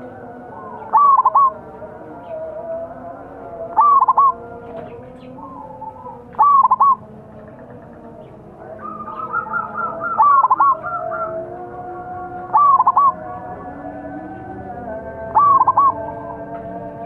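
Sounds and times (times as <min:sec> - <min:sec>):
dove cooing: 0:00.0 - 0:01.6, 0:03.4 - 0:16.6
faint bird calls: 0:00.6 - 0:01.6, 0:03.7 - 0:11.4, 0:12.5 - 0:13.2, 0:15.4 - 0:16.1.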